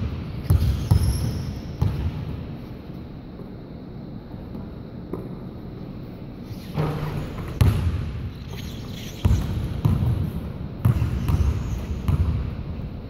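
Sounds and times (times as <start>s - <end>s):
basketball bouncing on wooden floor: 0.0s - 2.2s, 6.8s - 8.1s, 9.2s - 12.6s.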